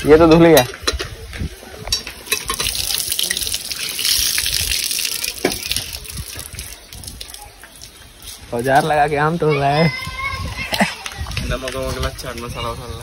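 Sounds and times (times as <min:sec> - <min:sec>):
water splashing onto stone: 0:02.0 - 0:09.3.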